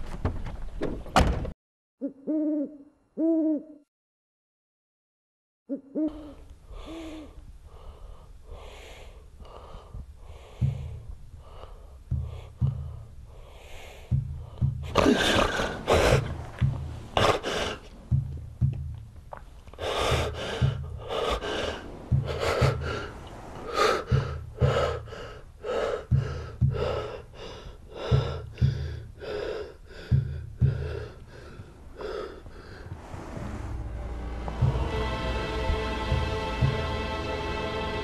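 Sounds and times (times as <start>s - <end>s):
man gasping for breath: 6.2s - 16.3s, 23.7s - 32.9s.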